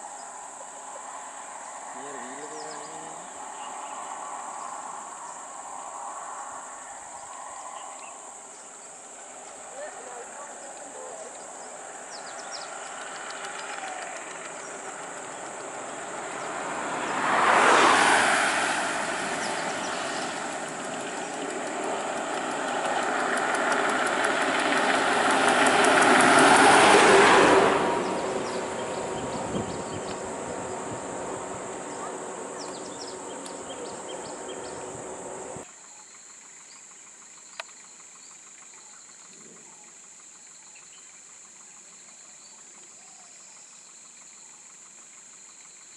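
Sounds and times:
diesel buses passing: 0:00.0 - 0:35.6
high insect chirring: 0:00.0 - 0:42.7.

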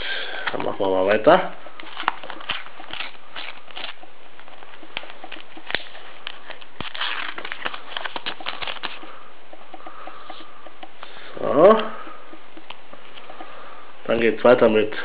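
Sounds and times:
packet being torn and crinkled: 0:01.8 - 0:04.1, 0:05.0 - 0:09.1.

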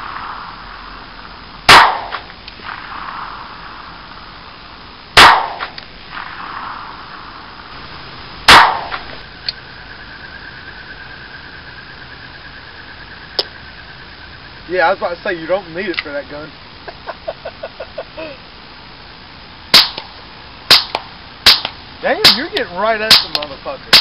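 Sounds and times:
pistol shots: 0:01.7 - 0:03.4, 0:05.2 - 0:06.9, 0:08.5 - 0:09.2, 0:19.7 - 0:20.1, 0:20.7 - 0:24.0.

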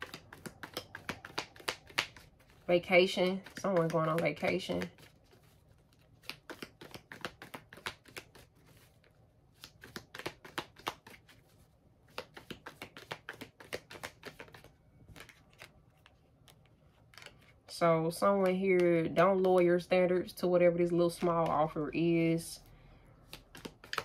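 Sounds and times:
cards being shuffled: 0:00.0 - 0:17.6, 0:18.2 - 0:19.8, 0:21.1 - 0:22.3, 0:23.2 - 0:24.0.

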